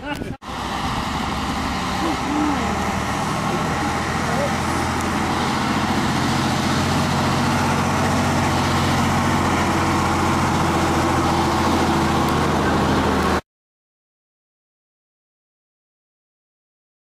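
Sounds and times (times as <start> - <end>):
deep engine drone: 0.4 - 13.4.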